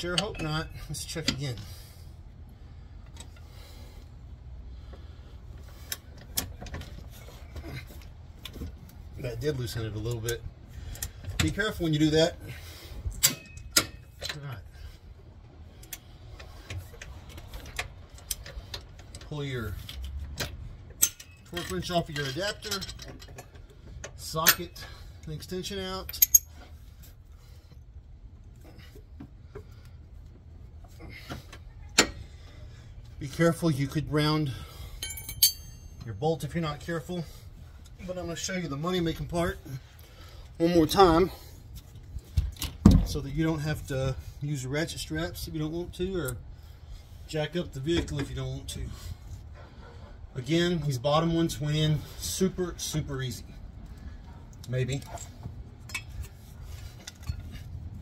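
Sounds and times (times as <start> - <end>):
steady low rumble: 0.0 - 22.7
metal tool clicks and clinks: 21.0 - 23.5, 26.1 - 26.6, 35.0 - 36.1.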